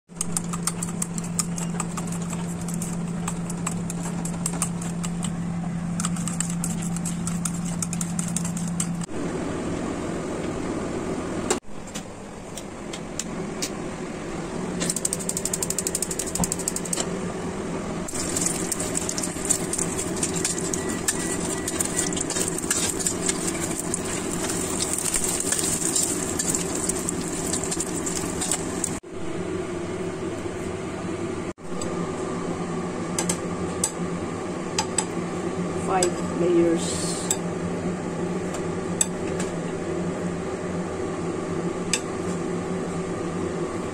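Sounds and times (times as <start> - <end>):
chopsticks beating eggs in bowl: 0.1 - 9.1, 14.8 - 17.0, 18.1 - 29.0
oil sizzling and crackling: 18.1 - 29.0.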